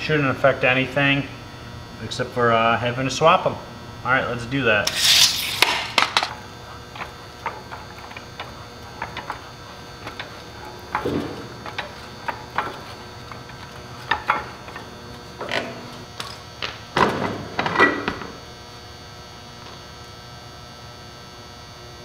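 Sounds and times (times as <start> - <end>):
tape measure retracting rattle: 4.9 - 6.3.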